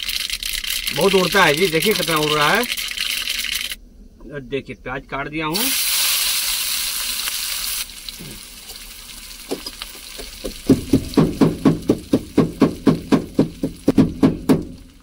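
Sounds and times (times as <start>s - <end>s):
onions frying in hot oil: 5.5s - 13.9s
pestle pounding in a glass: 10.2s - 14.8s.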